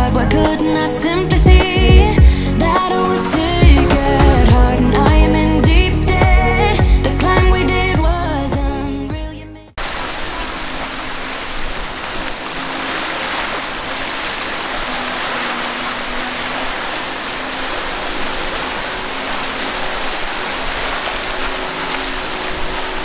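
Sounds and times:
outboard motor hum: 0.0s - 9.1s, 9.8s - 23.0s
wind: 0.0s - 23.0s
water spray rushing: 9.8s - 23.0s.

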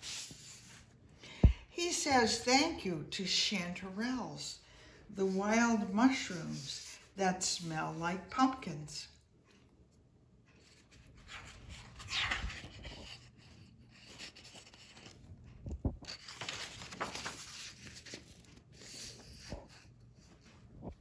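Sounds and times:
book pages rustling: 10.4s - 21.0s.

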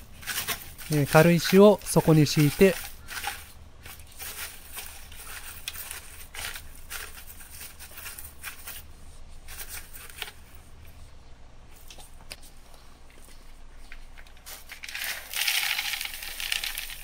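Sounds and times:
stones crunching in a mesh bag: 0.1s - 5.5s, 14.8s - 17.0s.

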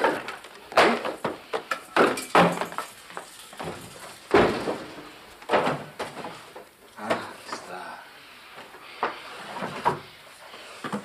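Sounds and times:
wooden drawers opening and shutting: 3.6s - 7.7s, 9.0s - 11.0s.

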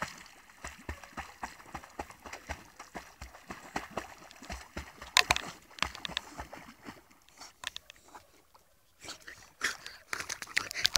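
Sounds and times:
dog splashing in water: 0.0s - 7.6s.

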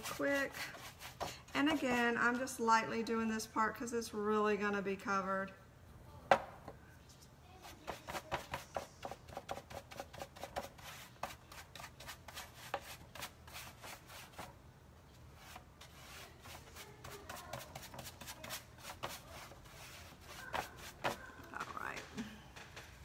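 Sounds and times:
paintbrush scrubbing wood: 0.0s - 2.6s, 7.6s - 14.6s, 15.3s - 21.4s.

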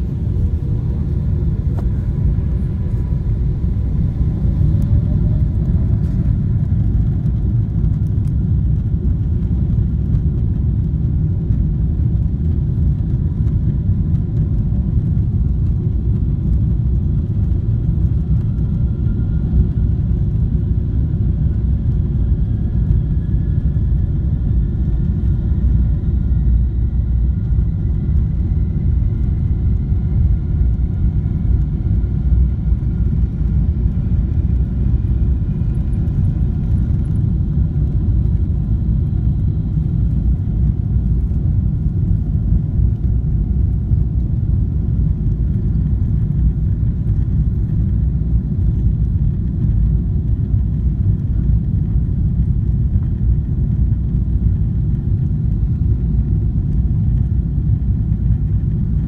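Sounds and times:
faint whine rising in pitch: 0.0s - 7.0s
deep rumble inside aircraft cabin: 0.0s - 59.0s.

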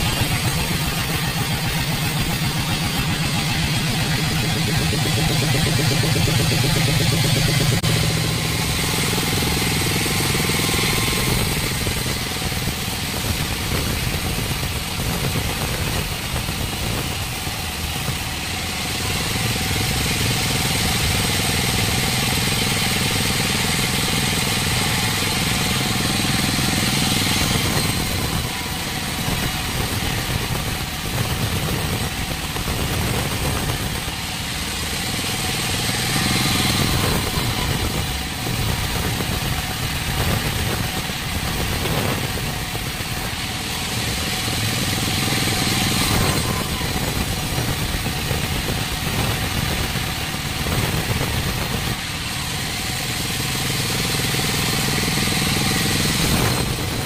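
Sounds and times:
band saw cutting timber: 0.0s - 57.0s.

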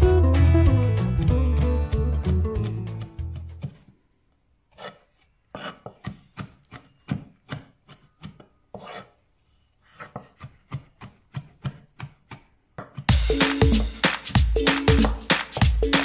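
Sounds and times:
electronic music with beat: 0.0s - 3.4s, 13.1s - 16.0s
knife chopping on cutting board: 3.2s - 3.9s, 4.7s - 9.1s, 9.9s - 13.1s.

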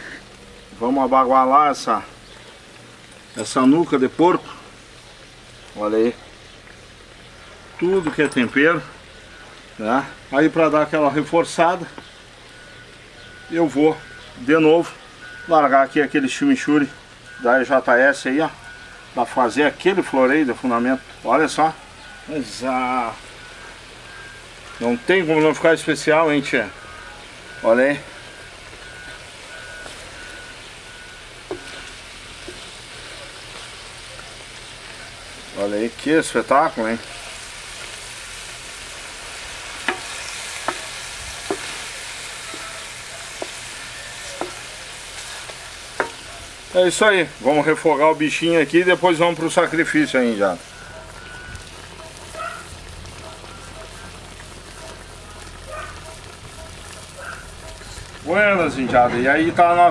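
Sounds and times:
meat sizzling in an iron pan: 0.0s - 59.4s
faint short beeps: 12.5s - 14.4s, 26.7s - 32.0s, 50.6s - 51.7s
wooden spatula stirring: 28.7s - 35.0s, 39.8s - 46.7s.

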